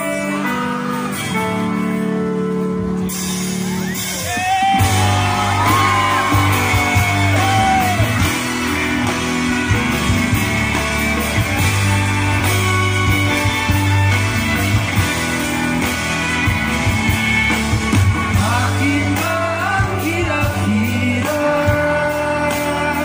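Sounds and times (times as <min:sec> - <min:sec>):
bass and drums: 0:00.0 - 0:23.0
guitar and keyboard chords: 0:00.0 - 0:23.0
person singing: 0:18.3 - 0:23.0.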